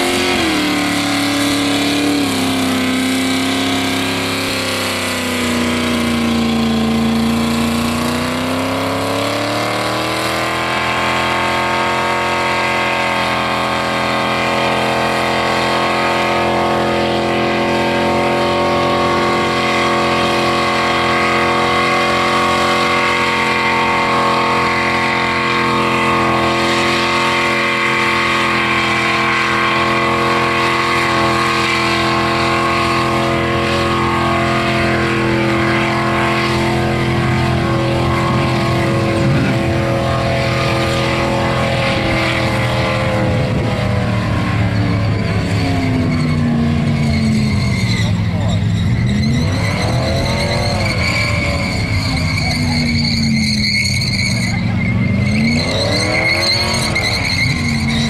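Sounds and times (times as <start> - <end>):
car engine at high revs: 0.0 - 58.0.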